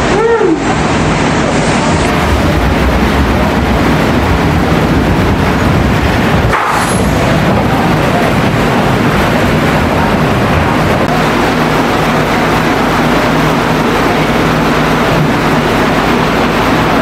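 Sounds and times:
low hum: 0.0 - 17.0
roller coaster train rumbling: 0.0 - 17.0.

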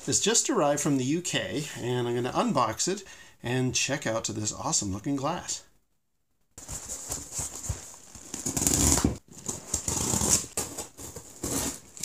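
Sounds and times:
cardboard scraping and rustling: 6.6 - 12.0.

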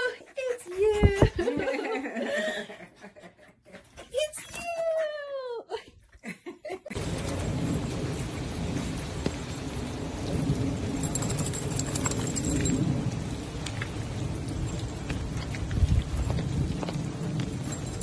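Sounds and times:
steady rain: 6.9 - 18.0.

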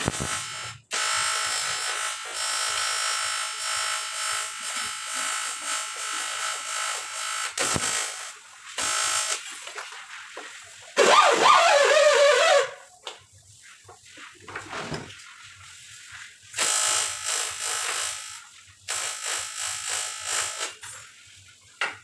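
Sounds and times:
welding arc buzzing: 0.0 - 9.8, 16.6 - 20.9.

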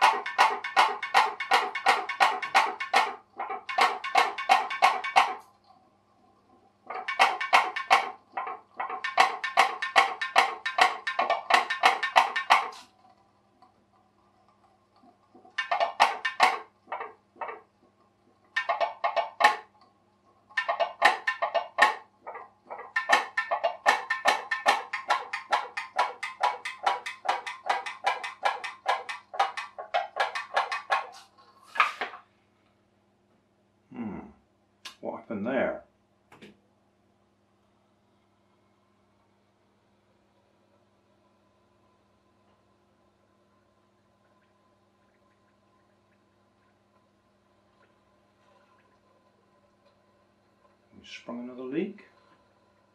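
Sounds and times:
pop-pop boat boiler popping: 0.0 - 5.6, 6.8 - 13.0, 14.9 - 32.0.

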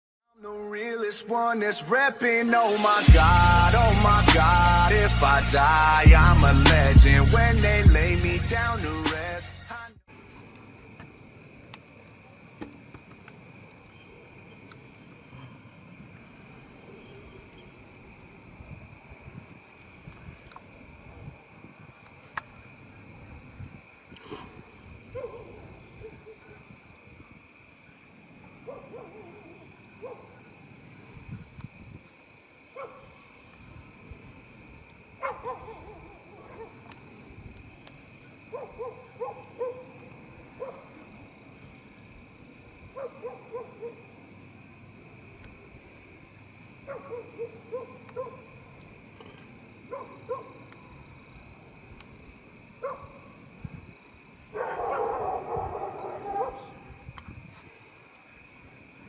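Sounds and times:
insects trilling: 0.4 - 59.0
pulsing insect trill: 10.7 - 59.0.

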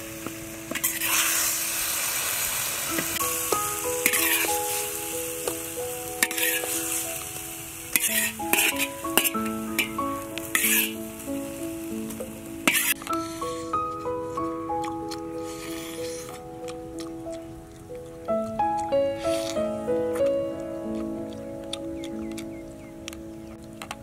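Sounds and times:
oil sizzling in wok: 0.0 - 13.7
metal ladle scraping pan: 0.7 - 1.5, 3.5 - 5.6, 6.2 - 7.2, 7.9 - 11.1, 12.6 - 13.1
background music: 2.8 - 24.0.

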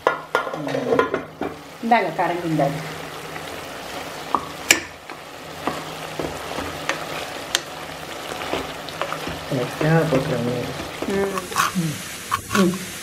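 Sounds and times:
curry sizzling in a metal pot: 0.0 - 13.0
spatula scraping a pot: 8.2 - 12.9.

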